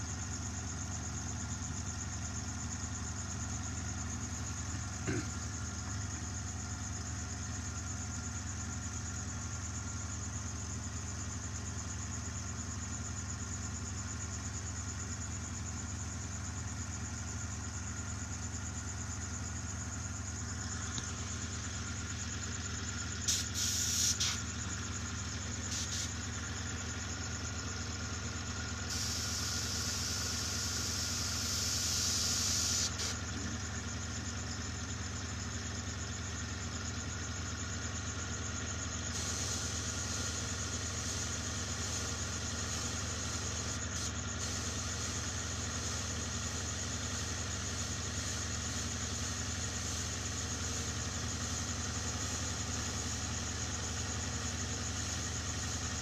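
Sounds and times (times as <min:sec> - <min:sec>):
compressor motor humming: 0:03.1 - 0:07.0, 0:20.2 - 0:34.2, 0:39.1 - 0:56.0
airbrush hissing air: 0:23.2 - 0:24.5, 0:25.5 - 0:26.2, 0:28.9 - 0:33.2, 0:39.1 - 0:50.9.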